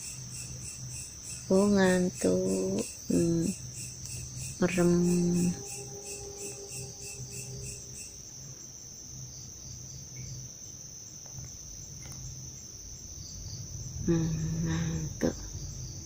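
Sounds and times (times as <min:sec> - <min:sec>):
crickets chirping: 0:00.0 - 0:16.0
soft low pulsing: 0:04.4 - 0:08.5.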